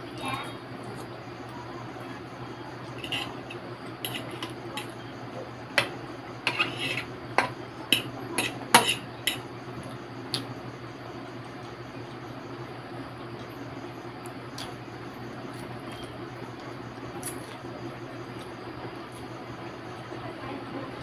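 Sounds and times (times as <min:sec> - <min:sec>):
fork clinking on plate: 0:06.5 - 0:09.4.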